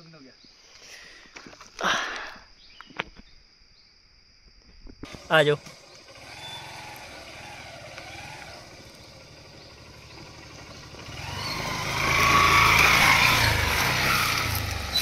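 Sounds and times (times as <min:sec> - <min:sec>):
motorcycle engine running: 0:05.1 - 0:15.0.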